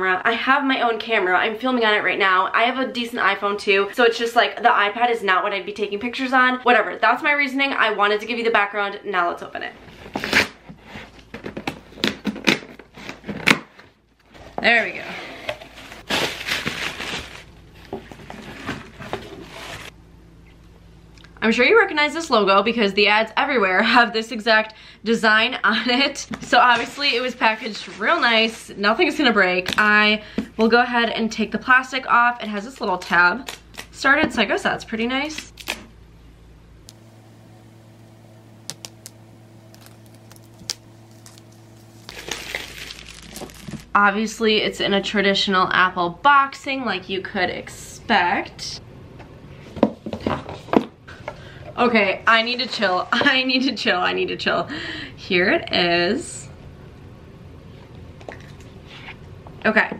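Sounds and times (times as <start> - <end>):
cardboard rustling: 14.3 - 19.9, 38.5 - 44.0
plastic air pillows crinkling: 16.0 - 19.9, 36.9 - 44.0
steady low hum: 28.6 - 59.9.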